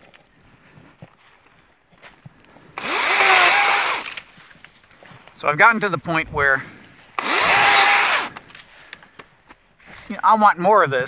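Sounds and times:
chainsaw motor whining with chain hiss: 2.8 - 4.1, 7.2 - 8.3.

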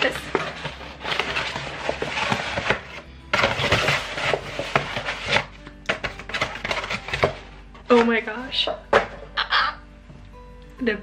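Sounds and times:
paper mailer crinkling and tearing: 0.0 - 7.4.

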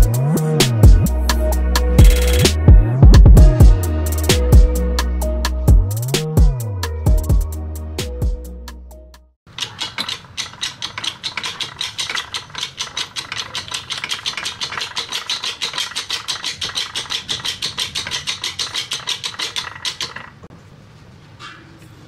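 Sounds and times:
hydraulic press bending steel: 9.5 - 20.4
rapid even clicking: 9.5 - 20.5.

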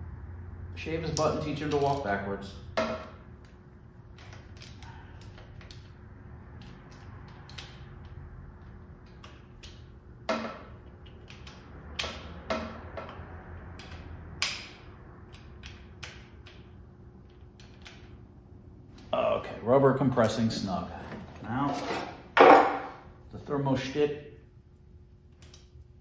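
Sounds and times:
sharp metal knocks: 2.7 - 3.2, 22.4 - 23.0.

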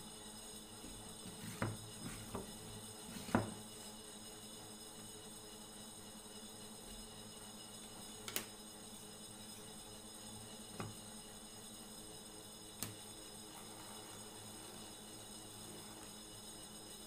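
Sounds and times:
wooden parts knocking on workbench: 1.3 - 2.5, 3.2 - 3.6.

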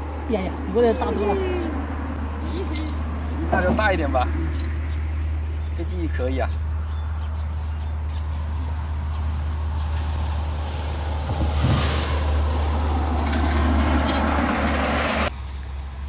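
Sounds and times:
road traffic rumble: 0.0 - 16.0
rushing noise: 9.6 - 15.3.

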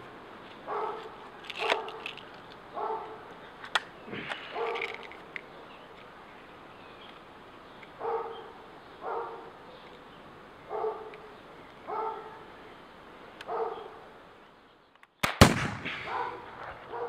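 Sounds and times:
dog barking: 0.7 - 2.0, 2.8 - 3.3, 4.5 - 4.9, 8.0 - 9.8, 10.7 - 11.2, 11.9 - 12.5, 13.5 - 14.0, 16.0 - 17.0
air rifle firing: 15.2 - 16.9.

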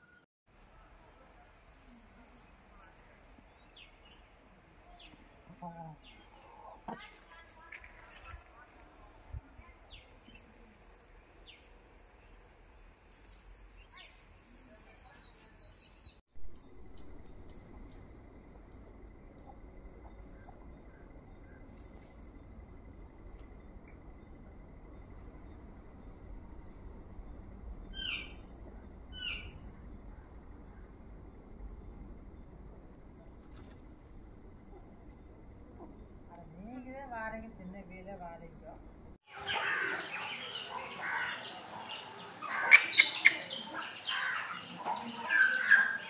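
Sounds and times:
faint chirps: 0.0 - 7.0, 13.8 - 46.0
bird calls: 28.0 - 28.5, 29.1 - 29.6, 39.3 - 46.0.

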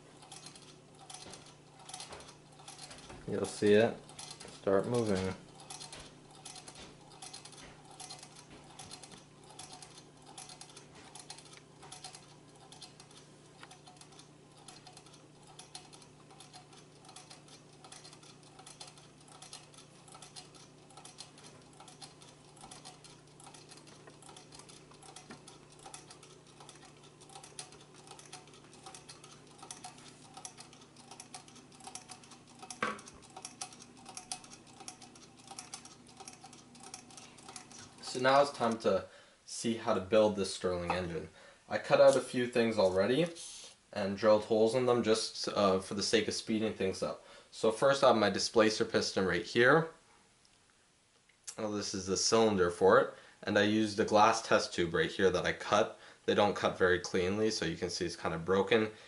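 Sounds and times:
small engine ticking rattle: 0.0 - 38.9.

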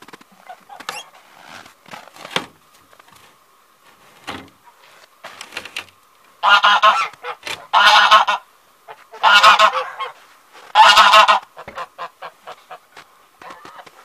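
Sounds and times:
faint short crackles: 0.0 - 6.3
geese honking: 6.4 - 14.0.

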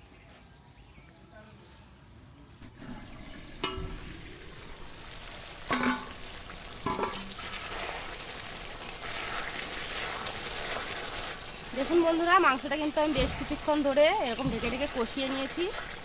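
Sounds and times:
meat sizzling in oil: 2.6 - 16.0
metal spatula clinking on pan: 5.7 - 6.2, 6.8 - 7.3, 14.2 - 14.7.

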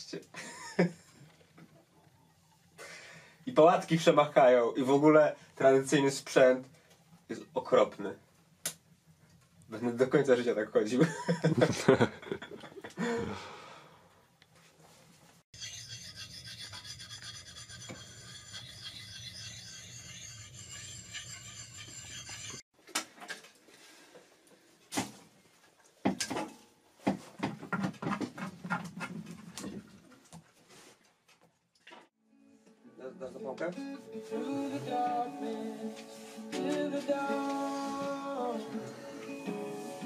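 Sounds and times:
rasping scrape: 15.6 - 22.6.

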